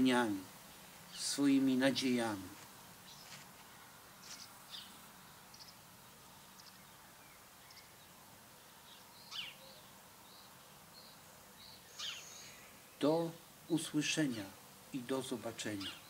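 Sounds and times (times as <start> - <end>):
faint bird chirps: 3.0 - 8.2, 8.8 - 13.0.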